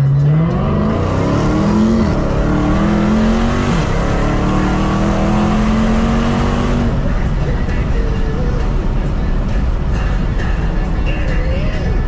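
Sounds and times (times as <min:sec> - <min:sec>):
car engine accelerating hard: 0:00.0 - 0:10.4
transmission shifting up: 0:00.0 - 0:12.0.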